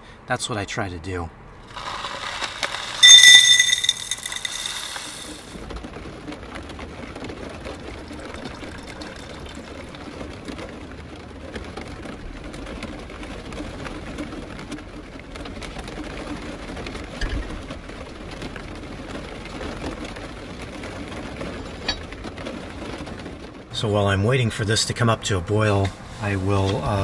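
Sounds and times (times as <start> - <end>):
water pouring into pot: 1.7 - 5.5, 8.0 - 10.0
loud high ringing tone: 3.0 - 5.4.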